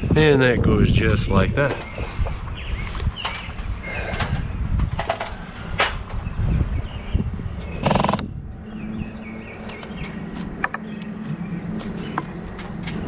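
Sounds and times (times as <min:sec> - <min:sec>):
small birds chirping: 0:01.7 - 0:04.7, 0:06.1 - 0:12.4
steady low hum: 0:07.5 - 0:12.6
loud harsh buzzing: 0:07.8 - 0:08.4.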